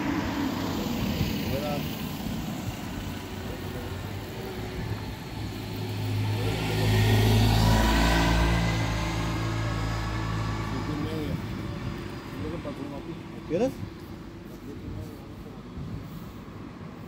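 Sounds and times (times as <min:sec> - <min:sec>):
car pulling away: 0:00.0 - 0:13.1
motor scooter passing by: 0:00.0 - 0:13.5.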